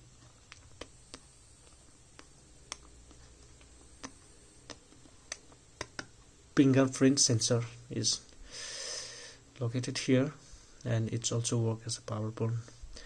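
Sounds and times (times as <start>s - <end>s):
fingers clicking and tapping phone: 4.0s - 6.2s.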